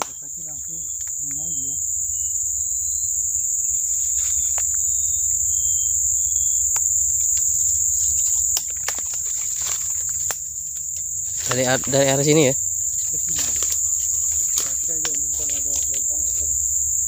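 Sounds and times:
insects shrilling: 0.0 - 17.0
footsteps crunching dry leaves: 3.7 - 5.1, 7.3 - 16.7.

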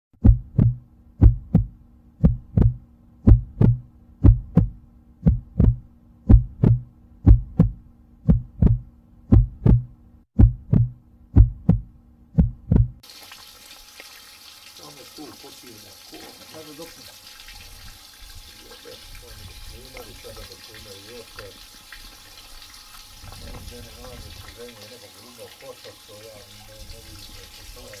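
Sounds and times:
heartbeat thumps: 0.2 - 13.0.

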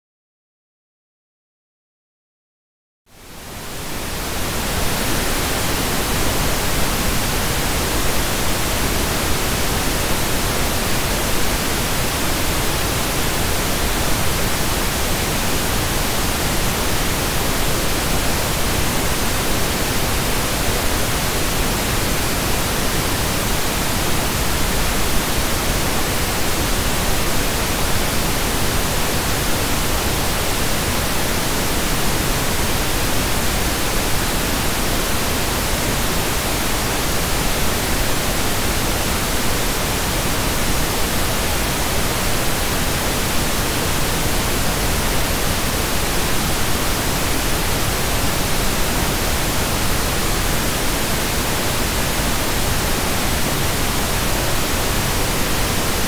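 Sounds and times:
pink noise hiss: 3.1 - 56.0.

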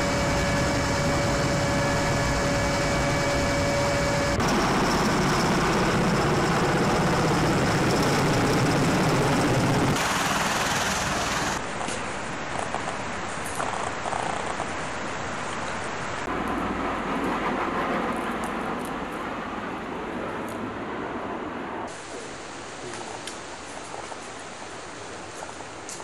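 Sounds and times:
aircraft cabin whine: 0.0 - 11.6
aircraft flying overhead: 0.0 - 11.6, 16.3 - 21.9
engine and rotor noise: 0.0 - 24.4
outdoor background noise: 0.0 - 26.0.

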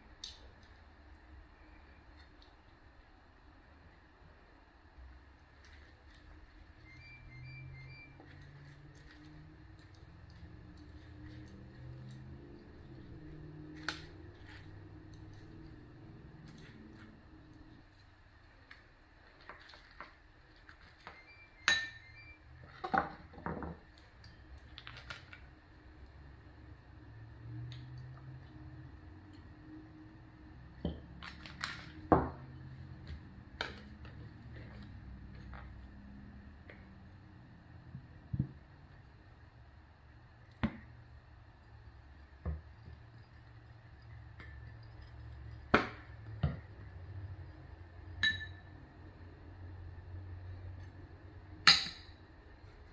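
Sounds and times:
spoon clinking against bowl: 21.6 - 22.2, 48.2 - 48.7
ceramic dishes clinking: 48.2 - 48.7.

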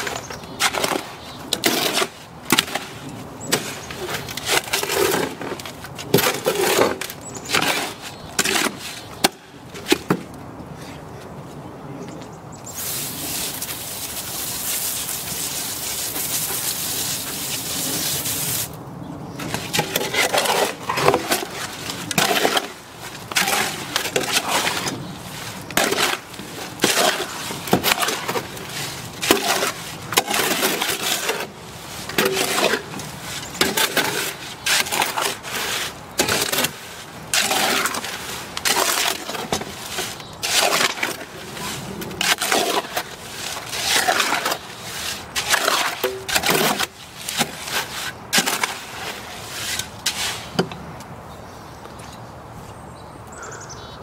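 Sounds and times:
shovel scraping wet concrete: 0.0 - 10.2, 12.7 - 18.8, 19.4 - 50.7
hose spraying water: 12.7 - 18.8.

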